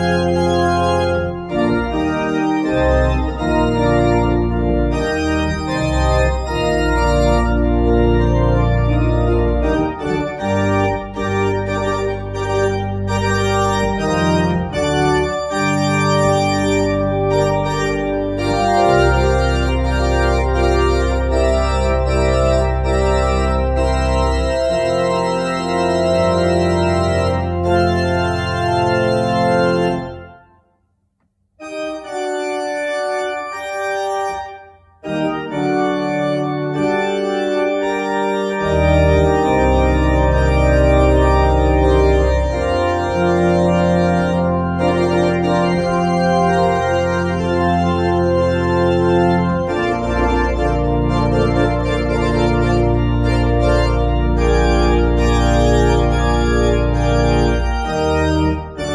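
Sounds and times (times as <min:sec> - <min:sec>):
deep organ pedal bass: 0:00.0 - 0:30.4, 0:31.6 - 0:58.9
church organ chords: 0:00.0 - 0:30.7, 0:31.6 - 0:58.9.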